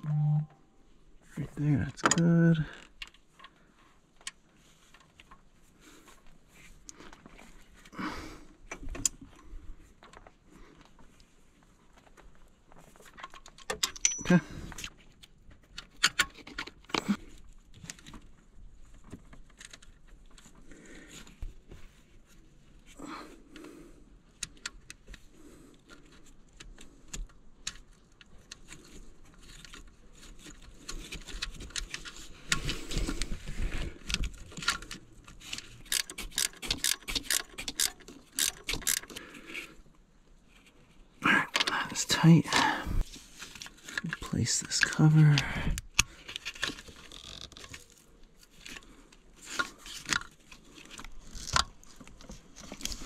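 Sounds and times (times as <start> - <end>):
metallic clicks of hand tools: 13.6 - 14.4, 35.6 - 39.2.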